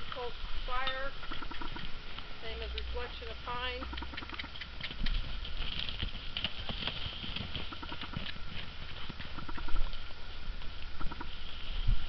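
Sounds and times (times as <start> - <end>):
horse hoofbeats on frozen ground: 3.9 - 10.7.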